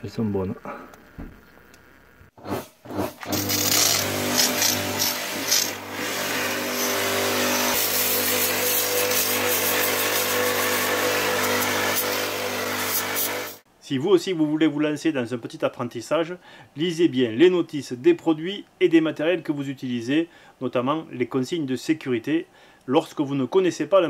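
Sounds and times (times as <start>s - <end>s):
pressure washer motor hum: 0.0s - 13.6s.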